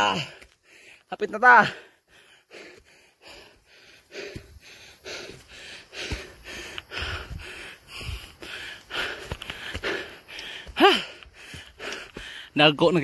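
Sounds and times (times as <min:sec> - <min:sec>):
person panting hard: 0:00.1 - 0:12.6
dull footfalls: 0:04.1 - 0:13.0.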